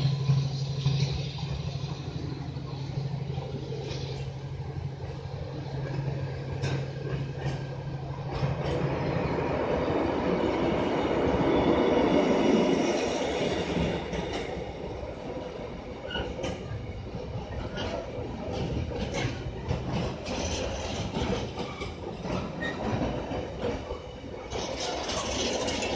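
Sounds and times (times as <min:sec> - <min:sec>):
train wheels clattering over rail joints: 0:05.7 - 0:09.1, 0:16.0 - 0:25.9.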